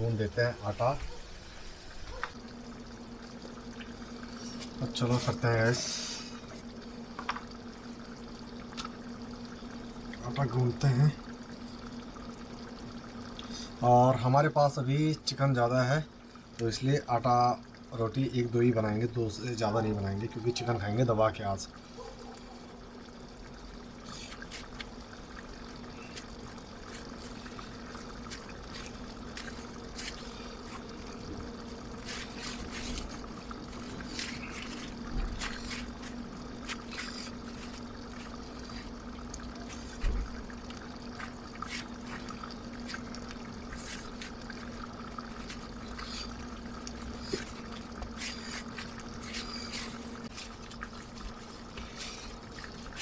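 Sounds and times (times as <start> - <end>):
dough kneading squelches: 24.0 - 53.0.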